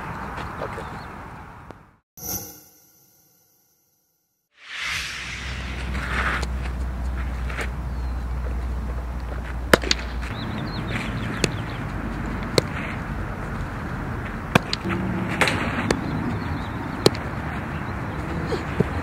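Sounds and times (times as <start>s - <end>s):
outdoor background noise: 0.0s - 2.0s, 4.7s - 19.0s
softball bat cracks: 14.6s - 15.6s.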